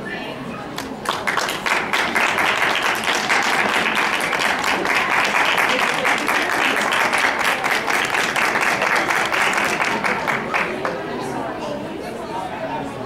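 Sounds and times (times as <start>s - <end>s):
audience applauding: 0.8s - 11.0s.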